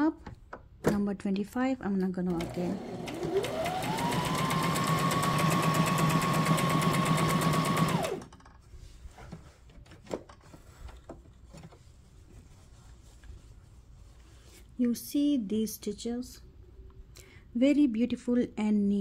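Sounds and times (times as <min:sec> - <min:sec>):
sewing machine stitching: 0:02.3 - 0:08.3
faint clicks and rustles: 0:08.3 - 0:14.8.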